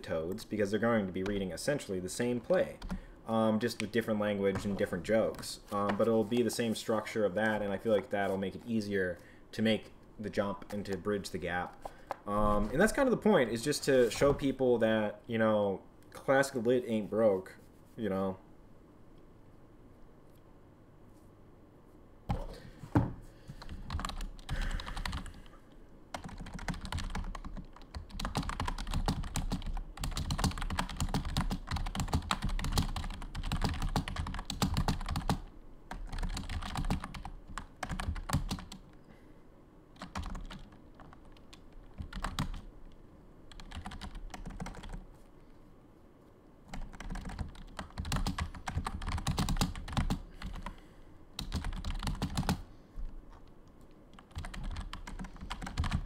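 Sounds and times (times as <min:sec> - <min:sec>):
computer keyboard typing: 0:02.7 - 0:03.0, 0:23.6 - 0:25.4, 0:26.1 - 0:38.8, 0:40.0 - 0:42.7, 0:43.5 - 0:45.0, 0:46.7 - 0:50.7, 0:51.4 - 0:52.6, 0:54.1 - 0:56.0.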